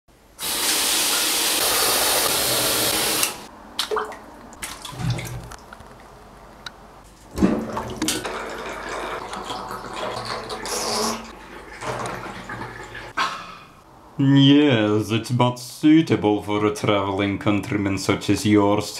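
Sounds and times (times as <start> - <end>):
water running into bathtub: 0.4 - 5.6, 7.3 - 13.2.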